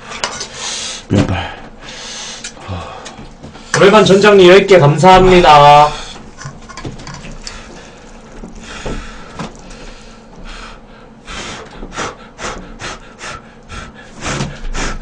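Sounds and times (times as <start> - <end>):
noodles being slurped: 6.3 - 10.2.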